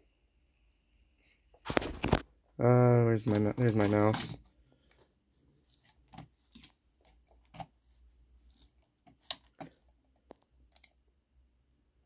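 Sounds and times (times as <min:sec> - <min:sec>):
faint low hum: 0:00.0 - 0:12.0
computer mouse clicks: 0:09.2 - 0:11.0.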